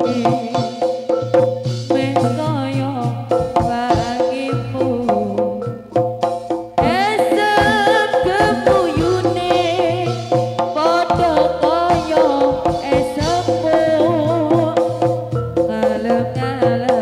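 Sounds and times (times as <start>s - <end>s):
gamelan ensemble music: 0.0s - 17.0s
hand drums beating: 0.0s - 17.0s
metallophone tones: 0.0s - 17.0s.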